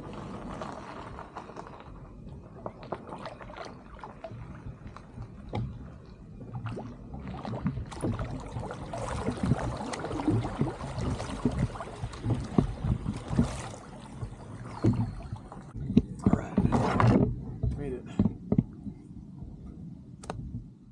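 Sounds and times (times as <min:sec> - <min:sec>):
oars splashing in water: 0:00.0 - 0:18.7
water dripping: 0:02.8 - 0:16.3.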